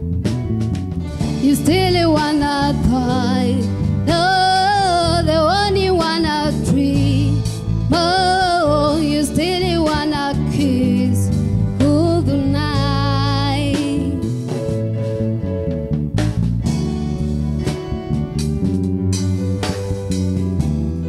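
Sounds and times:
live band accompanying: 0.0 - 21.0
woman singing into a microphone: 1.4 - 14.3.

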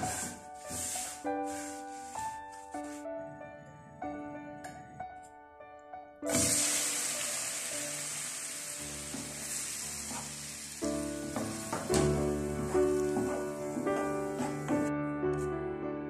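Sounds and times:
tomatoes sizzling in hot oil: 6.3 - 13.9.

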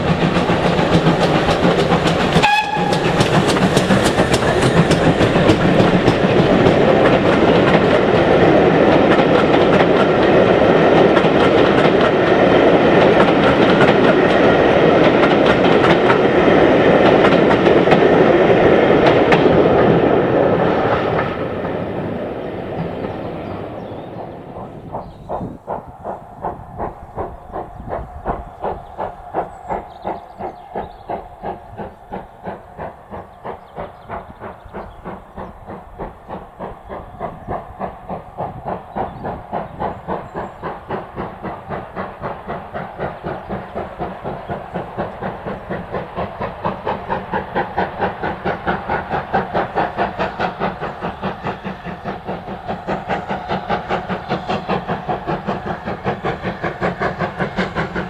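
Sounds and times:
steam locomotive exhaust beats: 0.0 - 58.0.

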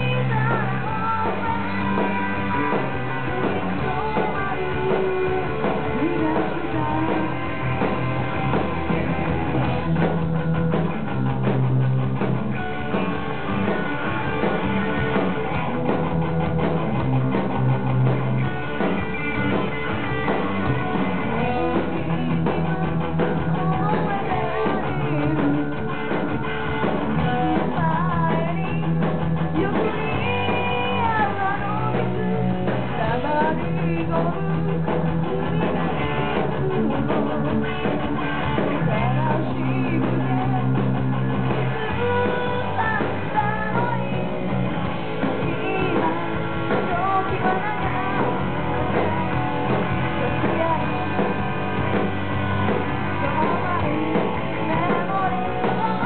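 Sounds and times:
woman singing: 0.0 - 8.4, 20.1 - 26.4, 27.0 - 51.5, 52.7 - 56.0
drum kit: 0.0 - 56.0
electric bass: 0.0 - 56.0.

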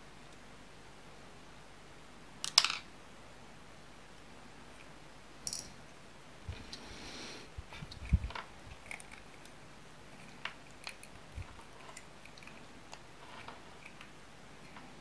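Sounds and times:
small clicks and scrapes on plastic: 7.7 - 15.0.

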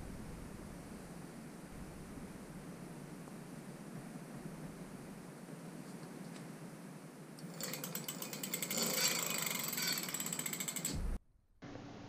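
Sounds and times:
freewheel ratcheting clicks: 7.4 - 11.0
hub motor spinning wheel: 7.4 - 11.2.

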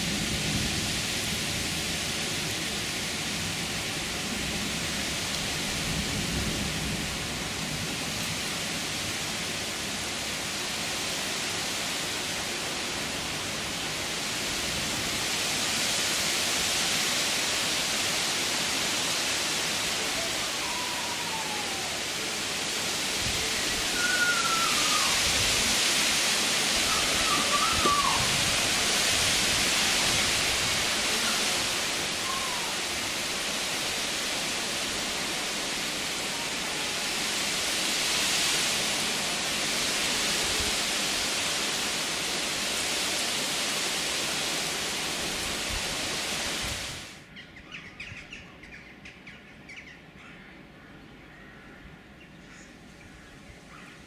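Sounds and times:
heavy rain pouring: 0.0 - 47.3
faint bird calls: 20.0 - 22.1, 23.5 - 25.3, 26.8 - 28.4, 31.2 - 32.9, 47.3 - 54.0.

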